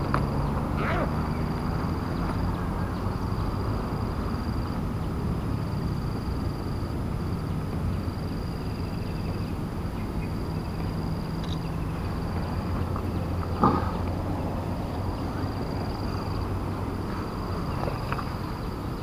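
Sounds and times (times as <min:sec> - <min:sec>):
continuous low hum: 0:00.0 - 0:19.0.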